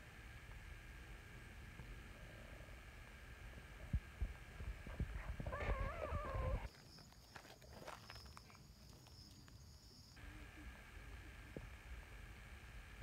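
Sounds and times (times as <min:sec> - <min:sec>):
high-pitched whine: 0:10.2 - 0:13.0.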